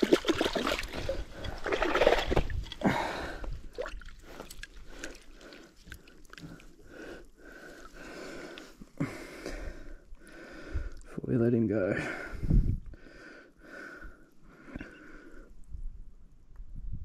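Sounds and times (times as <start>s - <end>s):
water splashing and sloshing: 0.0s - 8.8s.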